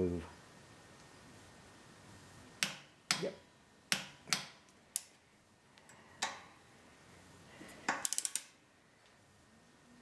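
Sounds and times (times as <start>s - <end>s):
torque wrench click: 7.9s - 8.5s
ratchet clicks: 7.9s - 8.6s.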